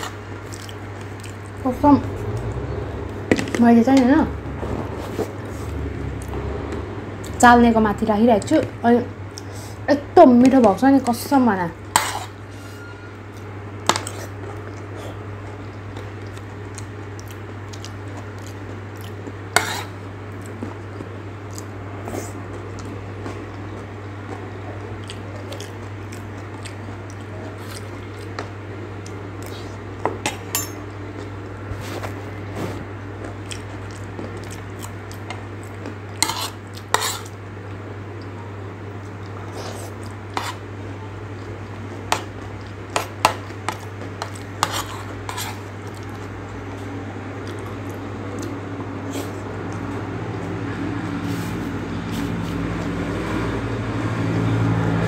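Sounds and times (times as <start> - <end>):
crunchy chewing: 0.0 - 1.6, 13.4 - 29.8, 33.2 - 38.3
steady low hum: 0.0 - 55.0
metal spoon clinking on plate: 30.2 - 30.9.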